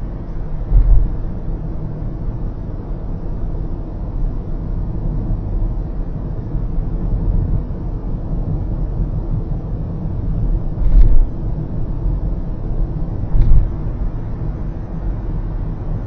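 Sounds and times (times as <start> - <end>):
tyre and engine rumble in car: 0.0 - 16.0
short thumps: 13.3 - 13.8.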